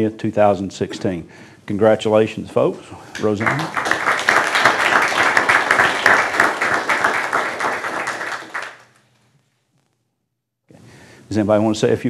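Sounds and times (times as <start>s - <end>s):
people applauding: 3.1s - 9.0s.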